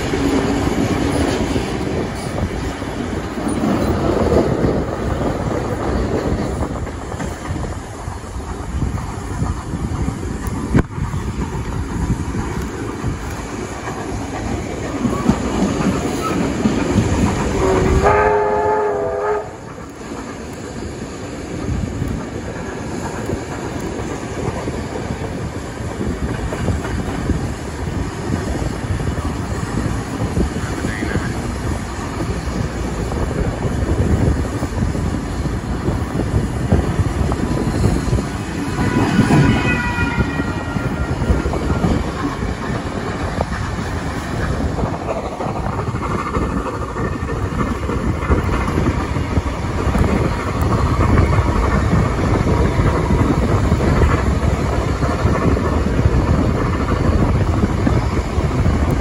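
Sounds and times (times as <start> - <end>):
steam train rumbling: 0.0 - 59.0
locomotive whistle: 17.6 - 19.7, 38.7 - 42.0.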